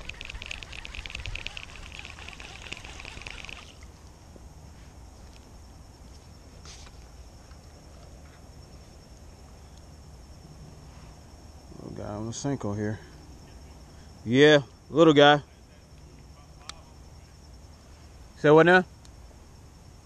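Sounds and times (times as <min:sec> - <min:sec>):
rapid high buzzing: 0:00.0 - 0:03.9
crickets trilling: 0:00.0 - 0:20.0.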